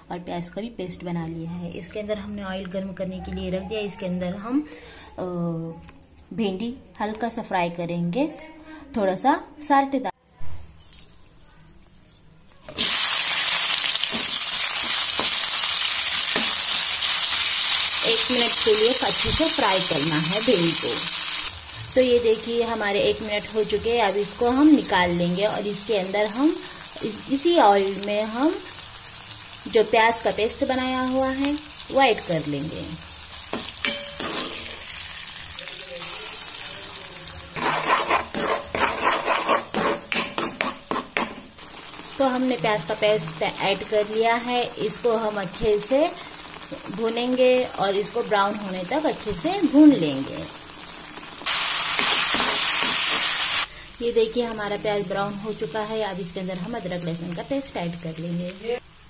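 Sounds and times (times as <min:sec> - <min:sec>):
okra sizzling in hot oil: 0:10.8 - 0:59.0
spatula tapping pan: 0:33.5 - 0:34.6, 0:37.6 - 0:41.5
metal spoon scraping: 0:33.5 - 0:35.0, 0:37.5 - 0:42.0, 0:51.9 - 0:53.3.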